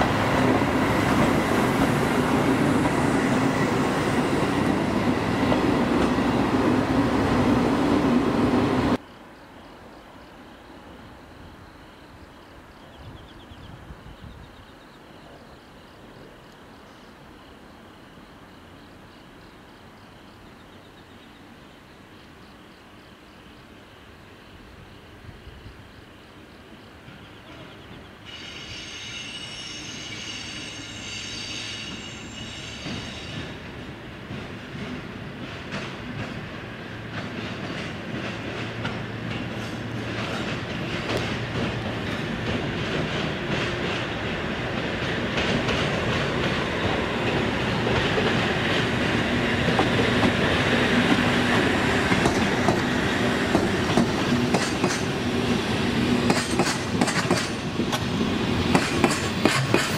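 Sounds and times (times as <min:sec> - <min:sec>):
train wheel noise: 0:00.0 - 0:09.0, 0:27.0 - 0:59.9
electric locomotive hum: 0:00.0 - 0:14.8, 0:22.6 - 0:59.9
wheels clicking over rail joints: 0:34.3 - 0:55.3, 0:56.2 - 0:59.9.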